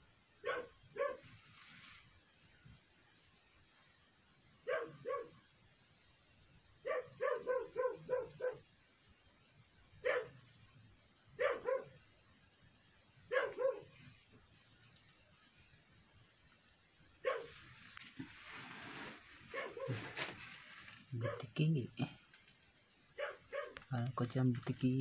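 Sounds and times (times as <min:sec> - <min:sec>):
dog barking: 0:00.4 - 0:01.3, 0:04.6 - 0:05.5, 0:06.8 - 0:08.8, 0:10.0 - 0:10.5, 0:11.4 - 0:12.1, 0:13.3 - 0:14.0, 0:17.2 - 0:17.6, 0:19.5 - 0:20.2, 0:21.2 - 0:21.6, 0:23.1 - 0:23.9.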